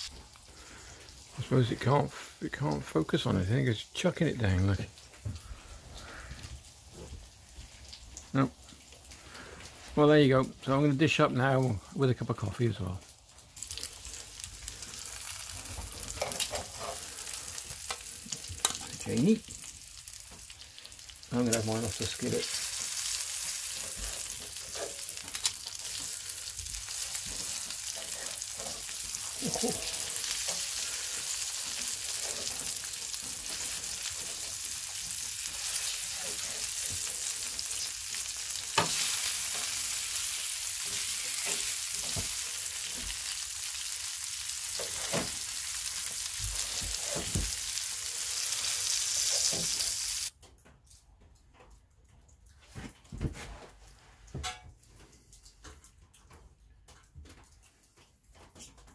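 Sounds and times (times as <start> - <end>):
meat sizzling in a skillet: 13.1 - 50.3.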